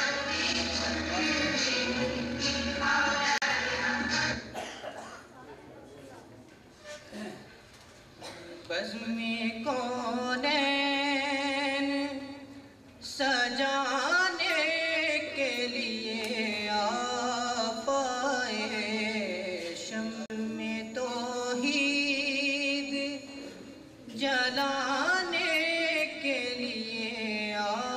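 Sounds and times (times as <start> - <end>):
man singing devotional song: 8.6 - 27.9.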